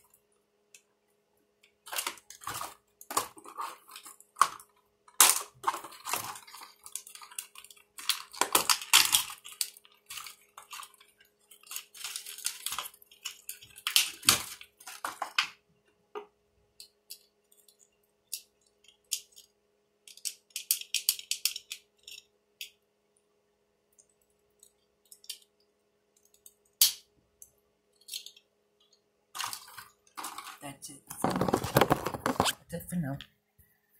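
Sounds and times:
plastic packaging crinkling: 0:01.8 - 0:15.6, 0:29.3 - 0:32.6
small plastic clicks: 0:16.2 - 0:22.8, 0:23.9 - 0:30.6.

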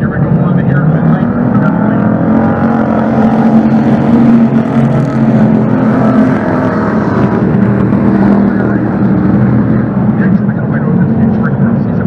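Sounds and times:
race car engines running hard: 0:00.0 - 0:12.0.

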